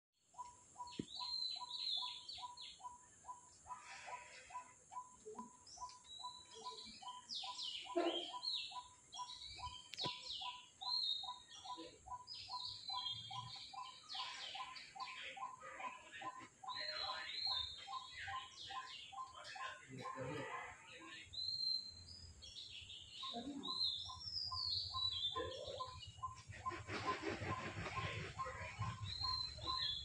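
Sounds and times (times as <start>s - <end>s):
birds chirping: 0.2s - 30.0s.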